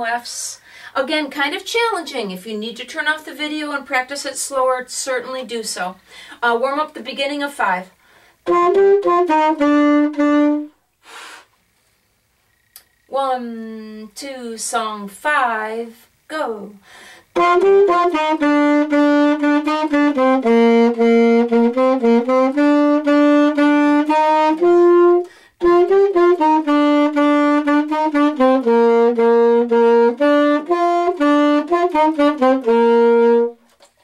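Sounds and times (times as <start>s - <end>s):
saxophone playing short notes: 8.4s - 10.8s, 17.3s - 33.6s.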